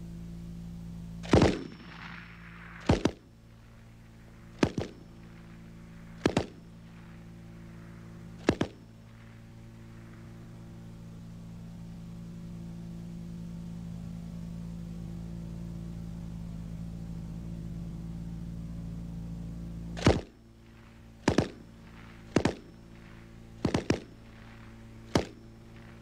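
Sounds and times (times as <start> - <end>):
steady low hum: 0.0 - 26.0
rifle firing bursts: 1.2 - 10.9, 20.0 - 26.0.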